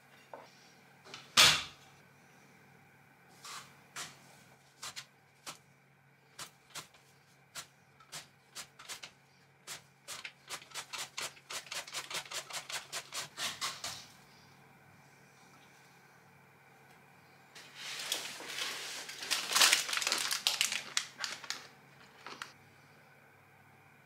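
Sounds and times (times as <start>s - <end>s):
mandoline slicer slicing vegetable: 10.1s - 14.0s.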